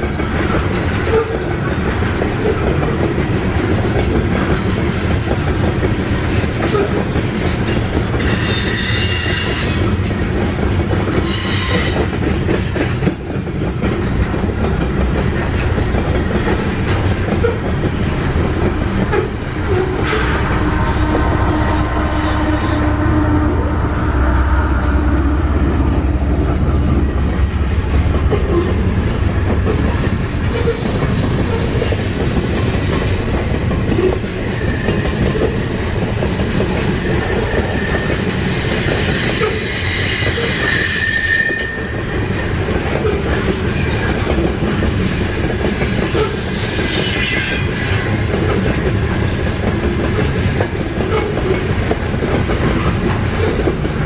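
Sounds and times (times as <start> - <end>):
diesel locomotives rumbling: 0.0 - 54.0
high-pitched wheel squeal: 7.7 - 10.2, 18.9 - 25.2, 37.3 - 41.9, 46.0 - 48.2.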